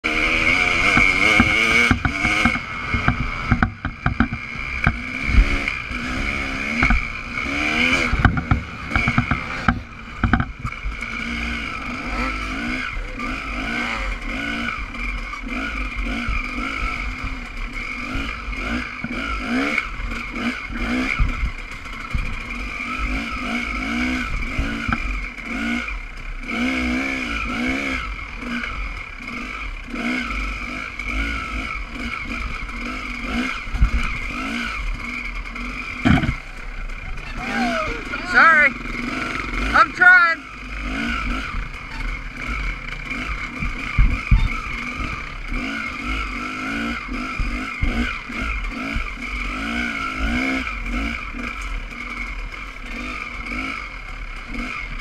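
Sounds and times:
dirt bike engine revving: 0.0s - 55.0s
bike knocking over bumps: 0.9s - 5.0s, 8.0s - 10.8s, 36.0s - 36.6s, 43.6s - 44.6s.

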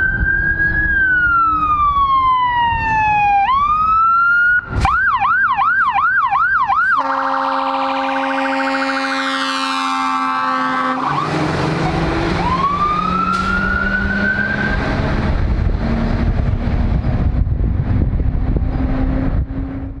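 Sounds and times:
rising whine: 0.0s - 7.0s, 10.0s - 20.0s
electronic siren: 0.0s - 15.1s
diesel engine rumbling: 0.0s - 20.0s.

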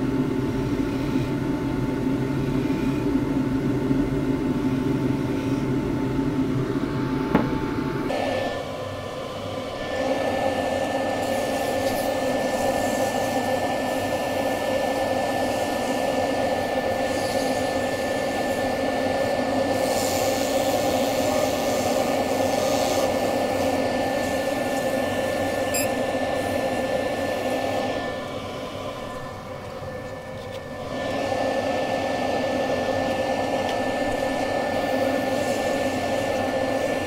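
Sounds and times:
sanding on wood lathe: 19.7s - 25.5s.

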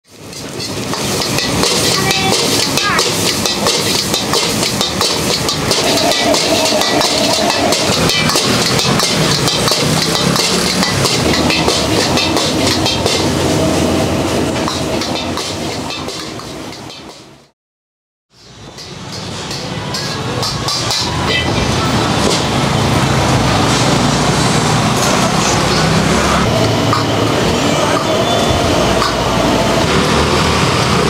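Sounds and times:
metal ladle scraping a wok: 0.1s - 17.3s, 18.4s - 29.2s
gas burner roar: 0.1s - 17.5s, 18.4s - 31.0s.

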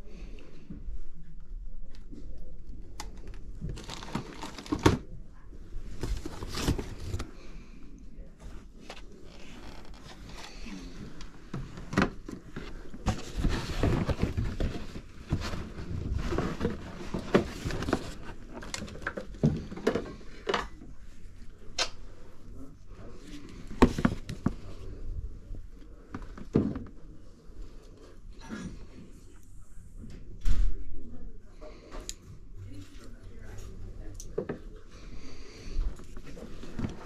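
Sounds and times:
objects rustling and crinkling: 3.1s - 7.7s, 8.4s - 21.5s, 22.6s - 29.1s, 34.9s - 37.0s.

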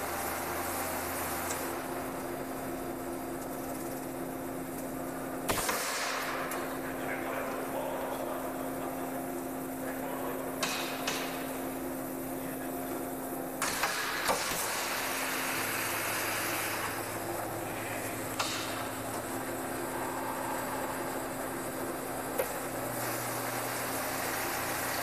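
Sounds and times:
machine electrical hum: 0.0s - 25.0s
air hiss bursts: 13.6s - 17.0s.

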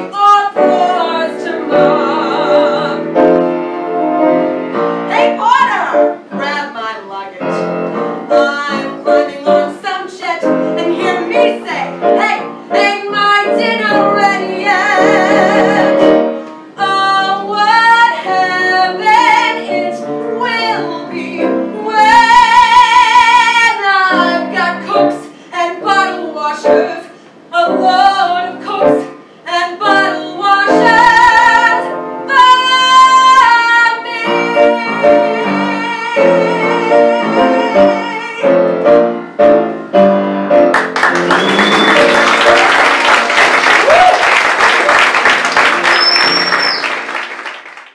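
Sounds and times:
woman singing belted: 0.0s - 3.4s, 5.1s - 16.2s, 16.8s - 38.7s
piano accompaniment: 0.0s - 47.9s.

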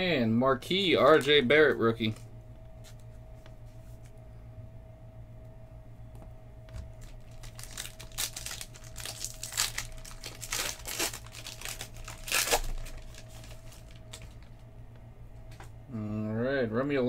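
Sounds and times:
foil wrapper tearing and crinkling: 7.0s - 14.5s.

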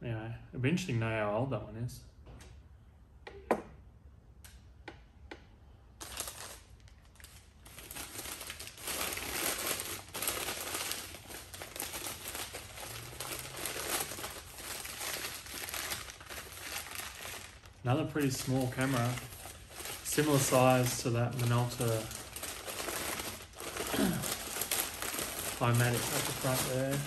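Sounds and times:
paper crinkling and rustling: 6.0s - 27.0s.

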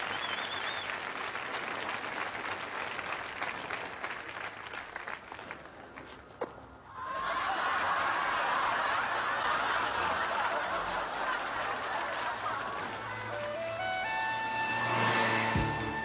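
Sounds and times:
studio audience laughing: 7.0s - 13.5s.

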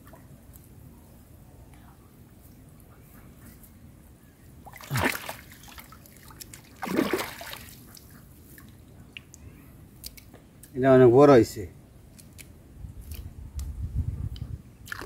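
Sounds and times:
hands splashing in muddy water: 4.7s - 7.8s.

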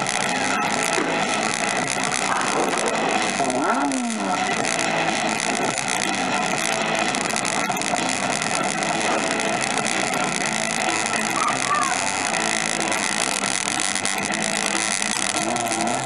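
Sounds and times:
rising and falling tone: 0.0s - 11.4s
amusement arcade din: 0.0s - 16.0s.

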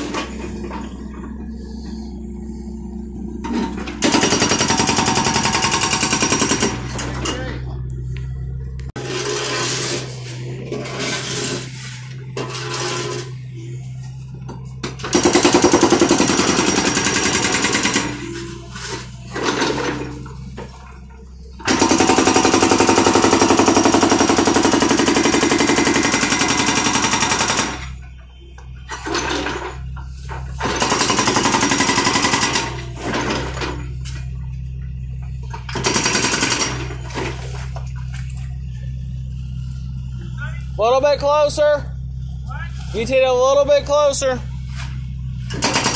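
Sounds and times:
excavator engine running: 0.0s - 45.9s
hydraulic breaker hammering concrete: 3.8s - 7.3s, 15.0s - 18.3s, 21.6s - 27.8s, 30.6s - 33.8s, 35.7s - 37.2s, 45.5s - 45.9s.

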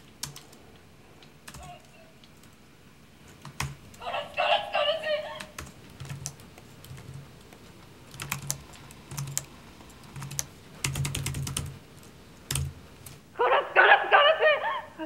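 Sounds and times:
keyboard keystrokes: 0.0s - 2.6s, 3.2s - 4.0s, 5.4s - 13.2s
woman crying loudly: 4.0s - 5.6s, 13.4s - 15.0s.

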